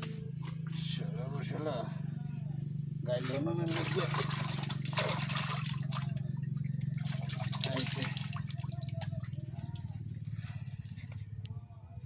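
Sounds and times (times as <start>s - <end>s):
steady low hum: 0.0s - 12.0s
water dripping and trickling: 3.6s - 10.2s.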